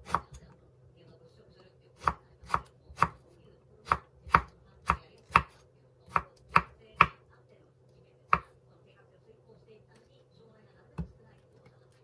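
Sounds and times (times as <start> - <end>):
knife chopping on wooden board: 2.0 - 3.2, 3.8 - 7.2.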